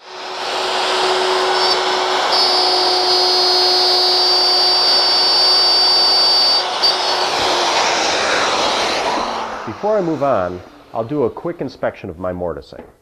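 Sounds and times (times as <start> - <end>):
router whining while cutting wood: 0.0 - 9.5.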